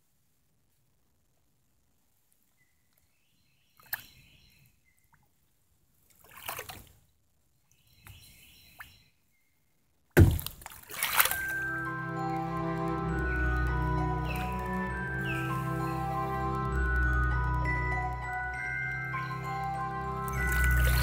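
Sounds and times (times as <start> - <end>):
paddle splashing in water: 10.2 - 11.6.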